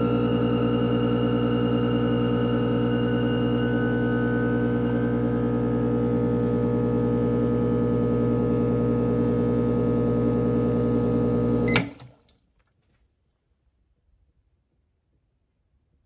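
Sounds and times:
espresso machine pump humming: 0.0s - 12.0s.

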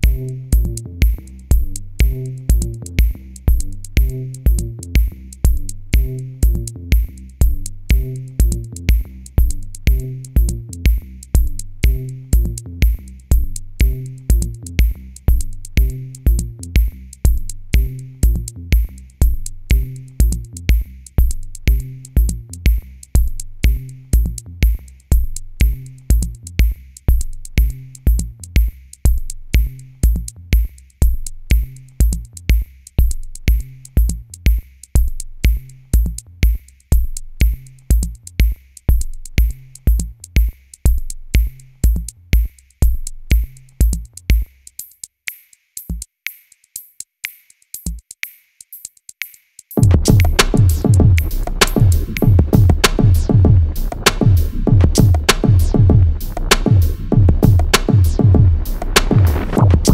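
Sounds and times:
electronic bass line: 0.0s - 32.4s, 49.8s - 59.9s
drum machine beat: 0.0s - 59.9s.

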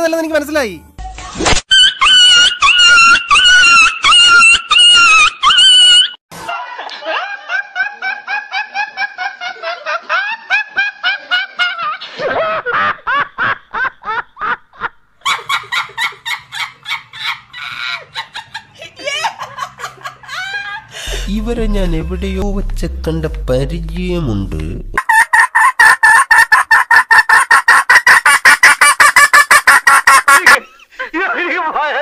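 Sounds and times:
woman laughing: 6.6s - 21.4s
young man laughing: 6.8s - 22.0s, 25.0s - 30.8s.

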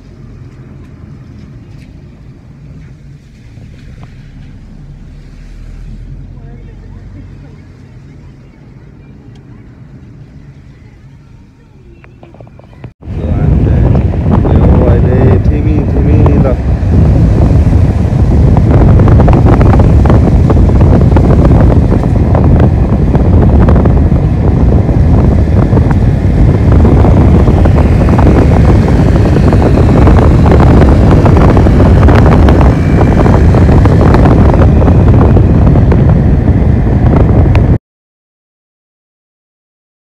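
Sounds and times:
car road noise: 0.0s - 37.8s
wind buffeting microphone: 12.0s - 37.8s.

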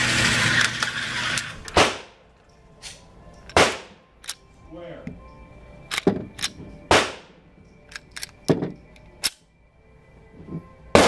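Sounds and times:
pistol shots echoing indoors: 1.8s - 2.2s, 3.5s - 4.0s, 6.9s - 7.4s.

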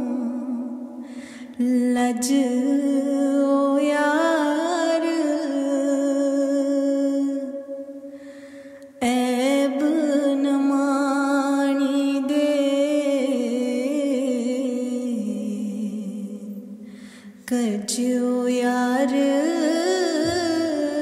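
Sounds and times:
person singing long notes: 17.5s - 21.0s.

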